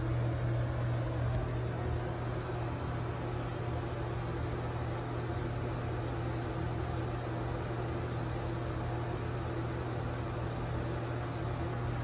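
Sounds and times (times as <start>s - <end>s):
exhaust fan humming: 0.0s - 12.0s.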